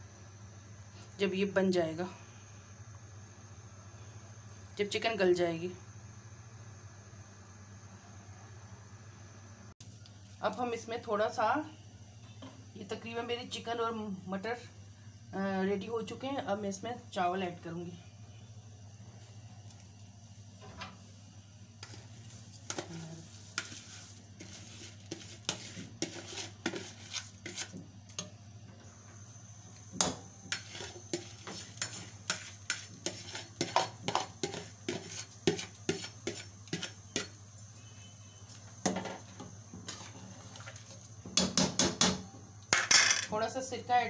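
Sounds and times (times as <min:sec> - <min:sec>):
steady low hum: 0:00.0 - 0:44.0
metal ladle scraping a pot: 0:21.8 - 0:27.8, 0:30.4 - 0:37.3.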